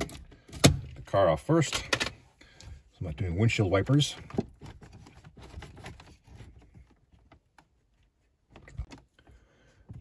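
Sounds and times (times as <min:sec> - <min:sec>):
plastic scraping: 0:04.1 - 0:07.5.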